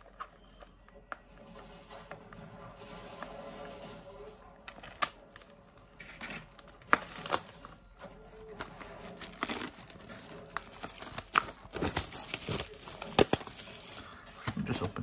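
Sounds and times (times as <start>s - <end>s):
plastic wrap crinkling and tearing: 4.7s - 7.8s, 8.4s - 14.2s.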